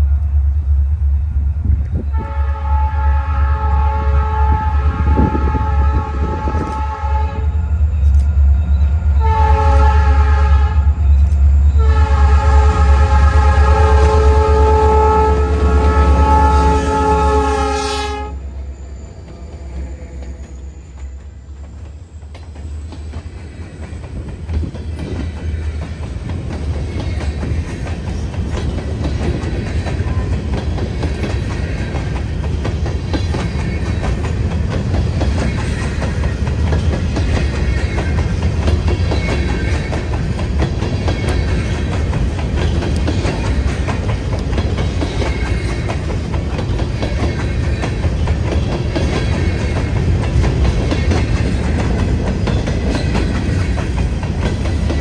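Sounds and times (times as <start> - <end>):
freight train wheels on rails: 0.0 - 55.0
clacking over rail joints: 20.1 - 55.0.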